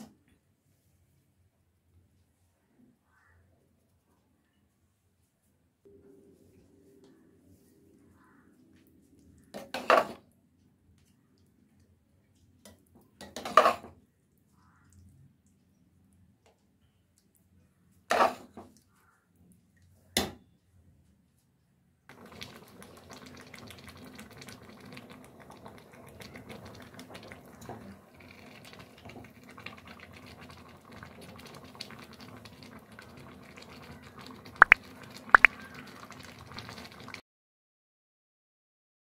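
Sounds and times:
thick stew bubbling: 22.1 - 37.2.

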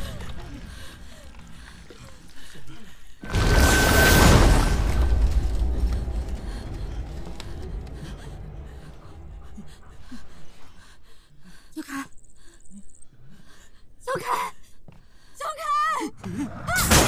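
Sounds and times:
low rumble: 3.2 - 10.6.

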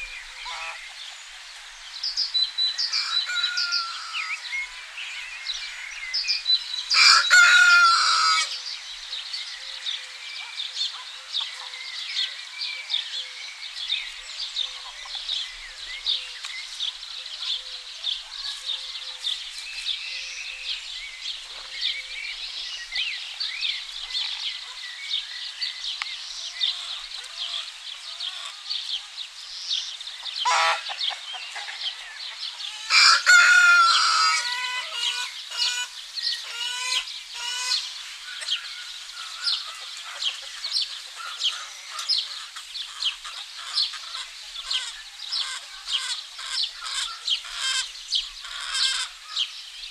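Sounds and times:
hens clucking: 0.0 - 1.2, 30.2 - 35.9, 39.2 - 49.2
songbirds chirping: 0.0 - 49.9
rooster crowing: 2.8 - 4.4, 6.9 - 8.6, 30.4 - 30.9, 32.8 - 35.3.

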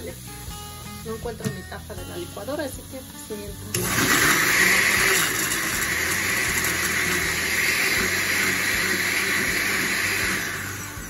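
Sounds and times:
blender motor whirring: 3.7 - 11.0.

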